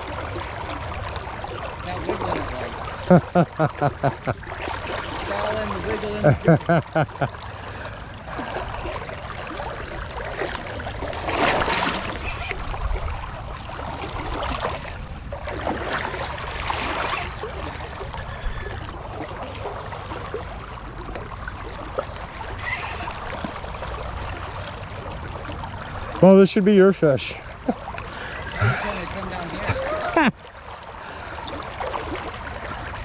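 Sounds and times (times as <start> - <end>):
river current rippling over riffle: 0.0 - 33.0.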